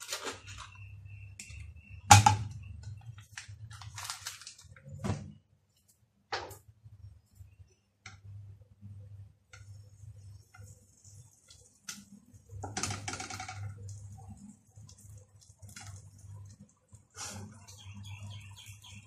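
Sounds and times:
butter sizzling: 9.6s - 17.8s.

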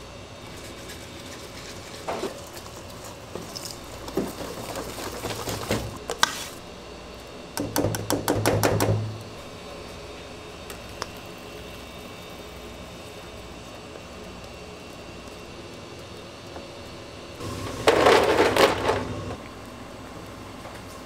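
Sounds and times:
whisk beating batter in metal bowl: 0.5s - 3.7s.

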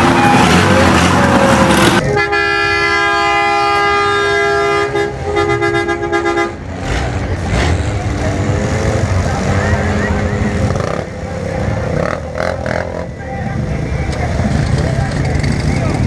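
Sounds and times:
buggy engines running: 0.0s - 16.0s
vehicle horn blasts and toots: 2.0s - 6.7s.

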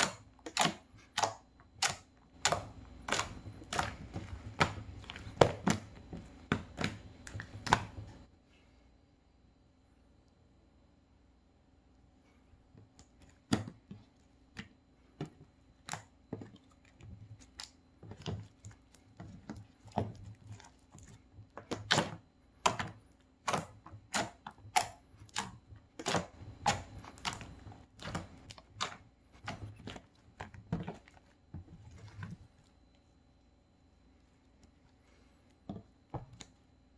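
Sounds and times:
slime clicking and popping: 0.0s - 5.9s, 21.6s - 29.0s.

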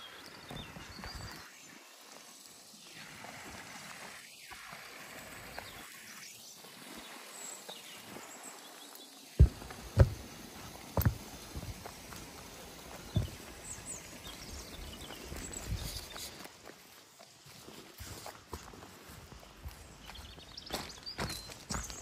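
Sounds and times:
faint outdoor hiss: 0.0s - 22.0s
heavy low thumps: 9.4s - 10.2s.

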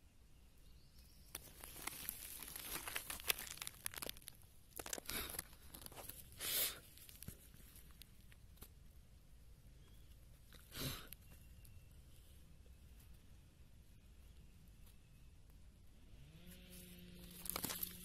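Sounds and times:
dry rustling and crackling: 1.3s - 8.8s, 16.6s - 18.0s.

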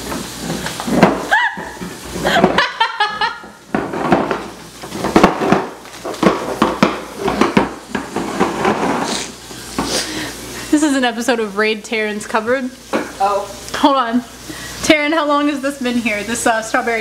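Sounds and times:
metal cans clunking on counter: 3.7s - 9.1s.

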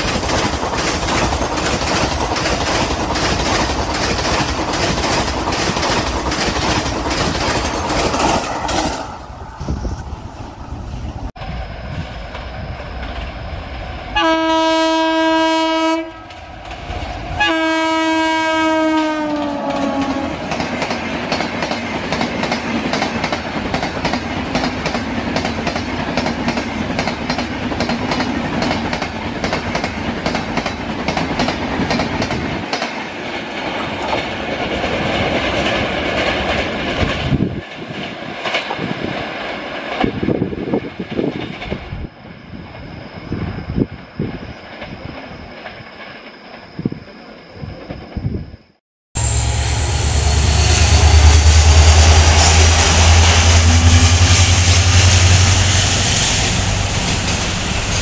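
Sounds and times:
train wheels clattering over rail joints: 0.0s - 9.2s, 19.7s - 41.8s
train horn blasts: 14.2s - 16.4s, 17.4s - 20.4s, 49.2s - 55.8s.

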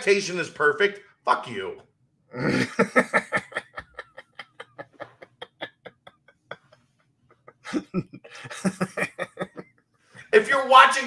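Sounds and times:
men laughing: 2.4s - 9.7s.

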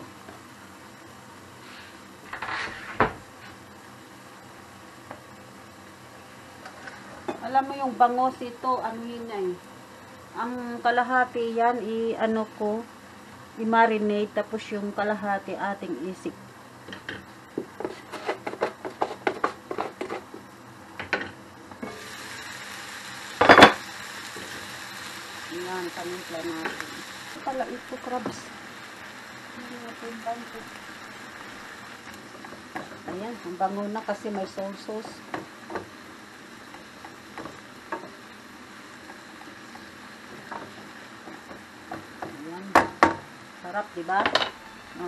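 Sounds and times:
vegetables simmering hiss: 0.0s - 45.0s
spatula knocking on pan: 41.5s - 43.3s.

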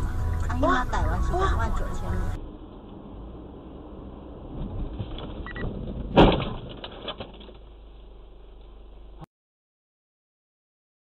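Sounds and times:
road and engine noise: 0.0s - 9.3s
loud car crash: 4.5s - 7.7s.

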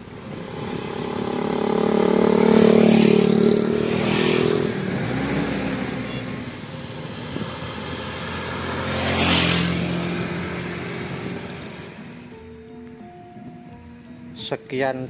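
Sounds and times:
motor scooters passing: 0.0s - 14.4s.

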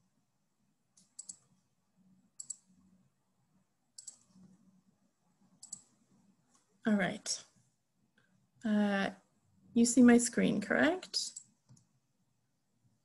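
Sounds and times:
computer mouse clicks: 0.9s - 1.5s, 2.4s - 2.7s, 3.9s - 4.6s, 5.6s - 6.7s, 11.3s - 11.9s.

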